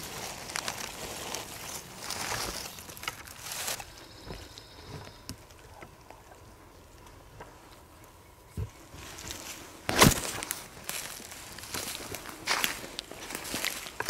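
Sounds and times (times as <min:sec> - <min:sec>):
dry leaves rustling and crunching: 0:00.0 - 0:05.2, 0:08.9 - 0:14.0.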